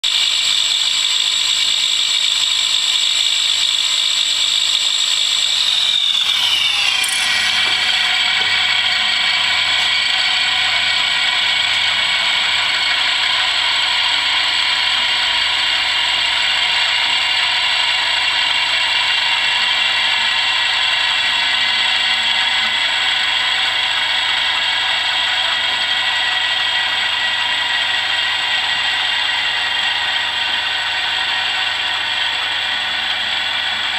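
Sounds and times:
balancing machine whine: 0.1 - 18.0.

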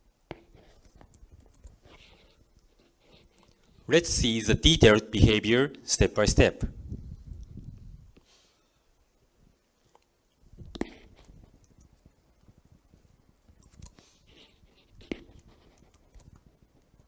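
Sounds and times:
handling and mouth noises: 0.3 - 3.9, 9.7 - 17.0.

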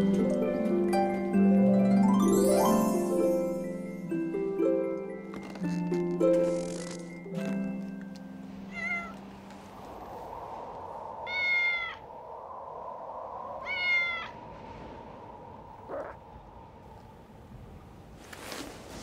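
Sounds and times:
cat meowing: 8.7 - 9.2, 11.2 - 12.0, 13.6 - 14.4.

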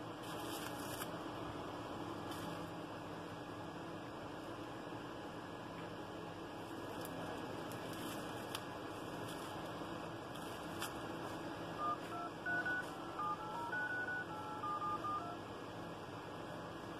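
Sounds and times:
touch-tone keypad beeps: 11.8 - 15.4.

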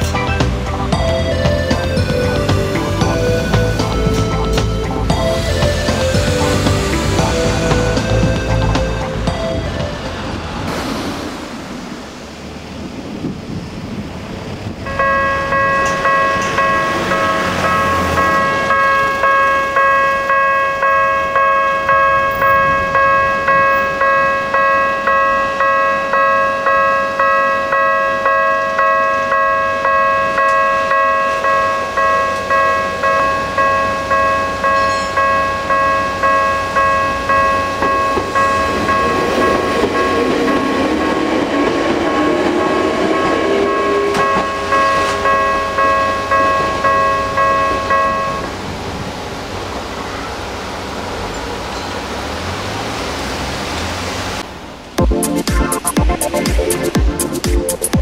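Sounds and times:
level crossing warning bell ringing: 0.0 - 10.6, 14.9 - 48.7
approaching train whine: 0.0 - 58.0.

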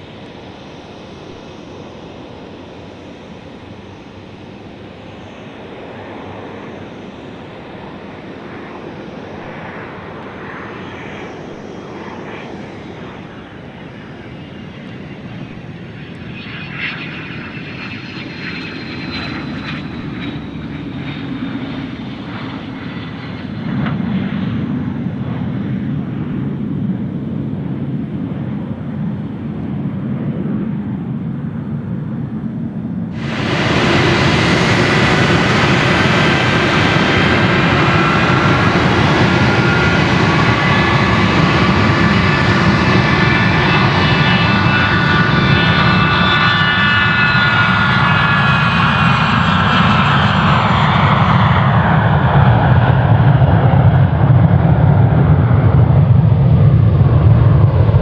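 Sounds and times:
jet engine noise with turbine whine: 0.0 - 58.0.

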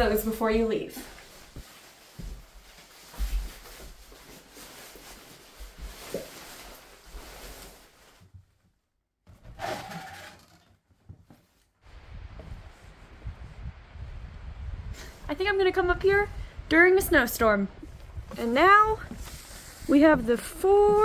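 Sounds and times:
footsteps on wooden floor: 0.6 - 4.4.

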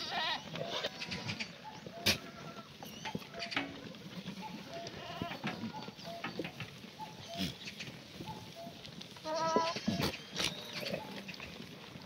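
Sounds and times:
goats bleating: 0.0 - 6.2, 9.1 - 11.4.

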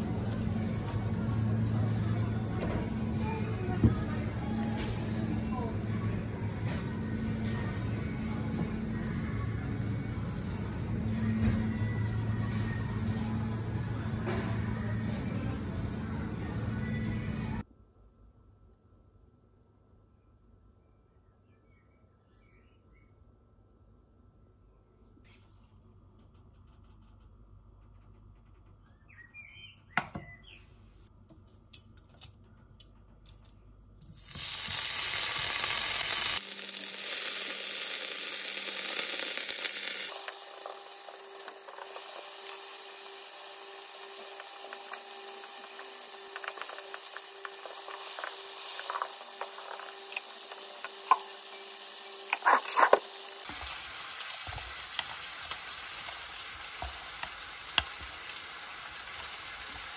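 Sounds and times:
meat sizzling in a frying pan: 34.2 - 59.9.

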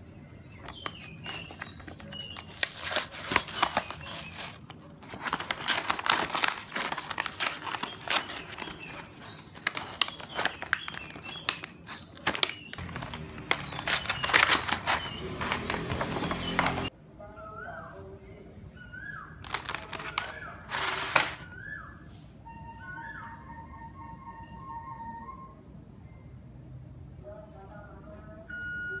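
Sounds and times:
plastic packaging crinkling: 0.6 - 16.9, 19.4 - 21.4
paper tearing: 0.7 - 16.9, 19.5 - 21.4.

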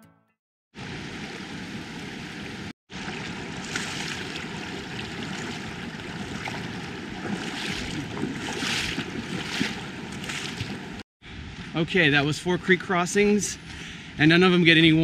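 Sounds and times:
water rushing over rocks: 0.8 - 11.0.

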